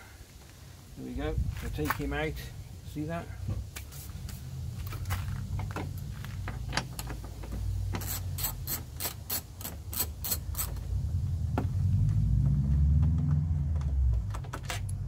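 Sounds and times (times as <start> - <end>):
low rumble: 10.8 - 14.4.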